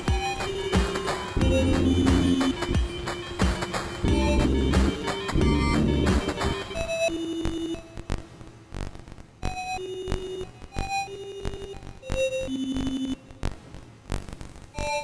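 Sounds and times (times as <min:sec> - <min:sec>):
sparse synth notes: 0:01.4 - 0:03.4, 0:04.0 - 0:08.0.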